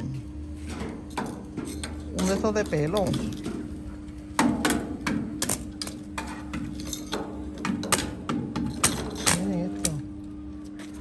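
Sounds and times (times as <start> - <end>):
steady low hum: 0.0 - 11.0
metal pieces knocking and clinking: 4.4 - 10.0.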